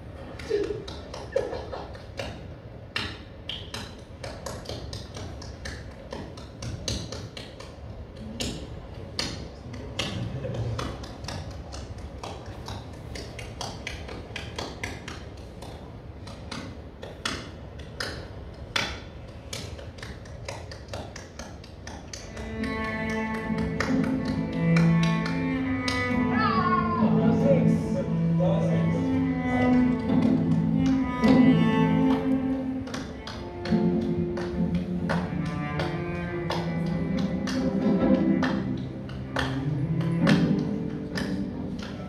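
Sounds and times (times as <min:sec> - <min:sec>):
sharp clicks and taps: 0:29.6 - 0:39.6.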